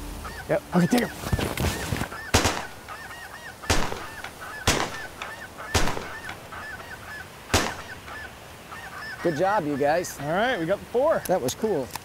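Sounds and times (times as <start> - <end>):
snow geese yelping: 0.0 - 11.9
shotgun shots: 2.3 - 2.8, 3.7 - 6.4, 7.5 - 8.0.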